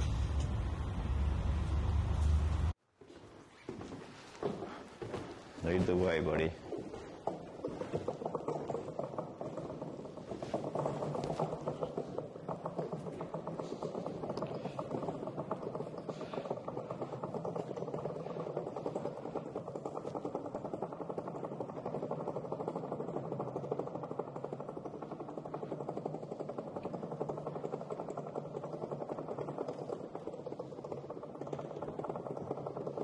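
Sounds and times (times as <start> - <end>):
mechanical rumbling drone: 0.0 - 2.8.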